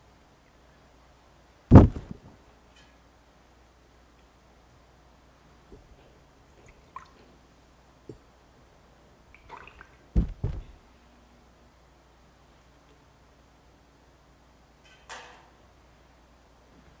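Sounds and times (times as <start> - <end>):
heavy low thumps: 1.7 - 2.2, 10.2 - 10.8.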